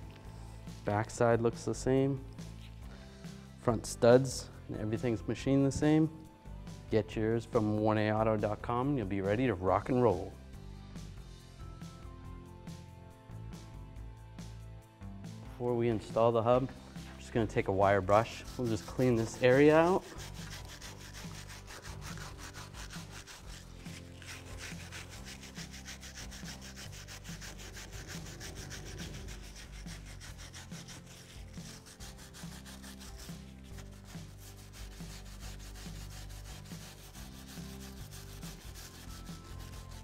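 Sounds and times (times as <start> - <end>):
wire brush rasping on rusty metal: 18.1 - 40.0.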